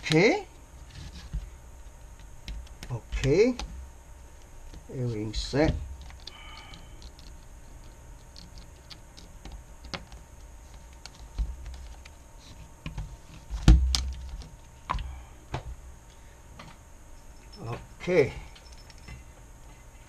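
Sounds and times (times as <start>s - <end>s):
small clicks and knocks of handling: 6.0s - 15.6s.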